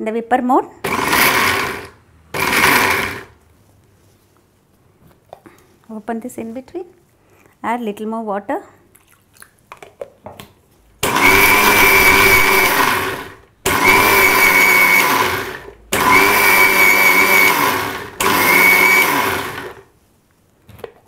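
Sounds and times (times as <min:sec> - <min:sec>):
mixer grinder motor whining: 0:00.8 - 0:03.3, 0:11.0 - 0:19.9.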